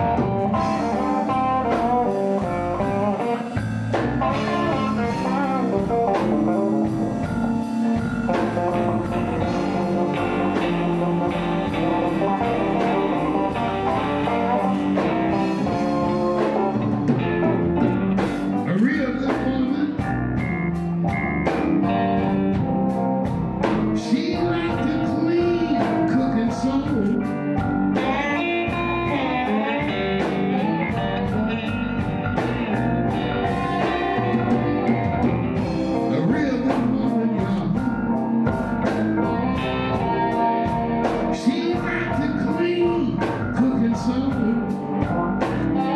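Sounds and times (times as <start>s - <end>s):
drum kit beat: 0.0s - 45.9s
electric guitars playing blues: 0.0s - 45.9s.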